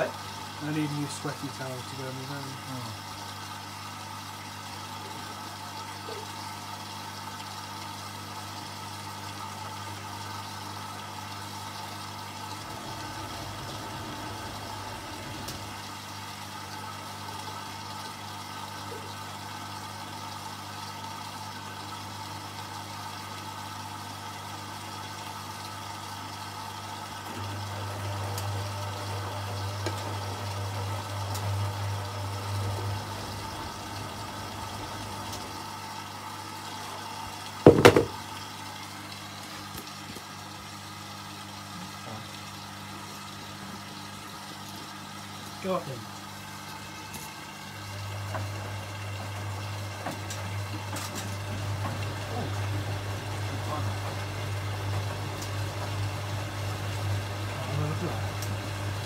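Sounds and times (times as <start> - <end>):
washing machine humming: 0.0 - 59.0
loud knock: 37.7 - 38.2.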